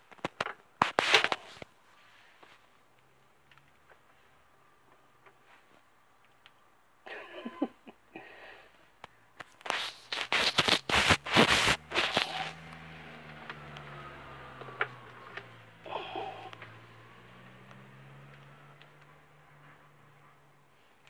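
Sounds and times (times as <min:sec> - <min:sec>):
hand rubbing against microphone: 0:09.5 - 0:12.6.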